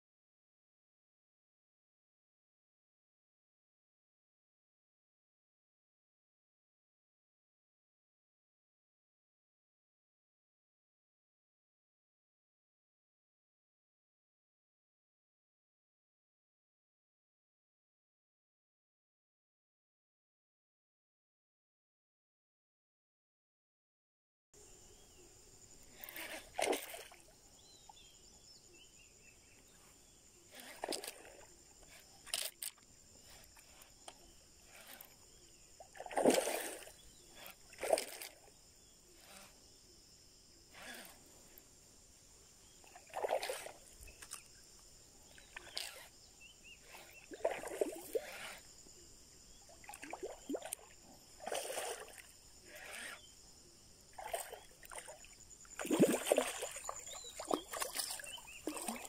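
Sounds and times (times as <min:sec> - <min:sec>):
lure splashing on water: 0:25.8 - 0:27.3, 0:30.5 - 0:38.6, 0:42.8 - 0:46.2, 0:46.8 - 0:48.8, 0:49.5 - 0:53.3, 0:54.1 - 0:59.0.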